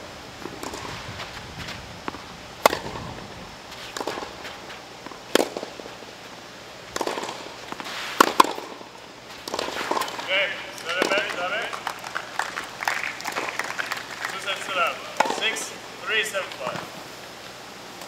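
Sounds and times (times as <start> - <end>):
tennis rackets striking ball: 0.4 - 1.0, 2.1 - 3.2, 3.8 - 5.9, 6.9 - 16.9
tennis ball bouncing: 0.4 - 3.0, 3.8 - 5.9, 6.9 - 15.7.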